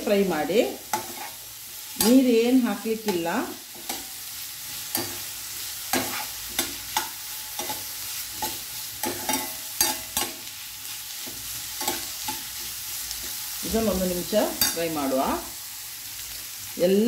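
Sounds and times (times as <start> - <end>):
vegetables sizzling in a pan: 0.0 - 17.0
spatula scraping a pan: 0.8 - 2.3, 3.0 - 14.9.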